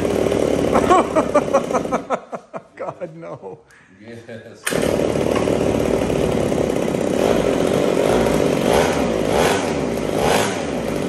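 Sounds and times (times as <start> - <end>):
small motor running loudly: 0.0 - 2.0, 4.7 - 11.0.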